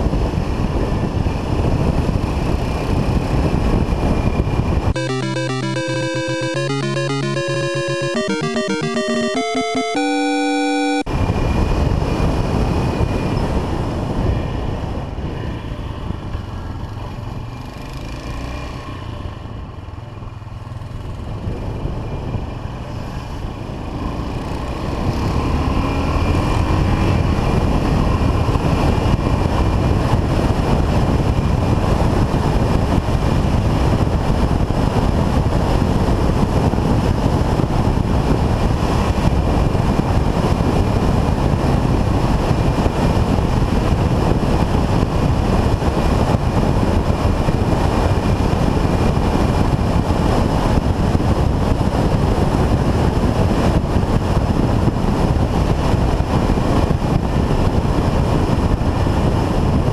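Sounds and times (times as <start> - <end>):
wind noise on microphone: 26.9 - 59.9.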